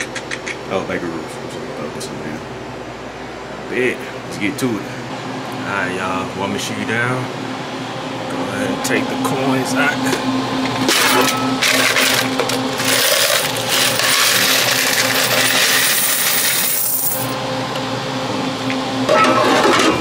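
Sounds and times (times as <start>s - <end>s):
coins pouring and jingling: 11.1s - 17.4s.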